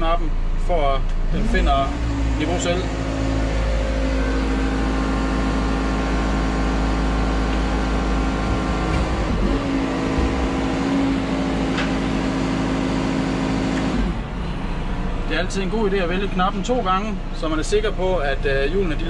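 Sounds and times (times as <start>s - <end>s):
diesel engine running: 0.0s - 19.0s
hydraulic whine: 0.0s - 19.0s.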